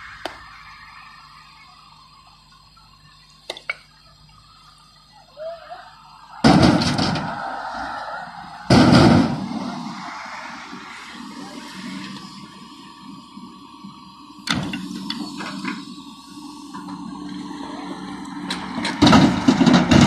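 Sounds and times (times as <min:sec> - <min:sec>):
faint engine hum: 0:00.0 - 0:20.0.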